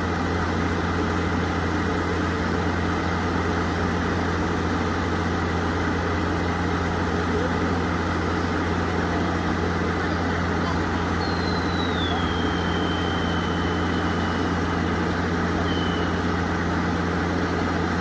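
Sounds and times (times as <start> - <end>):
diesel locomotive idling: 0.0 - 18.0.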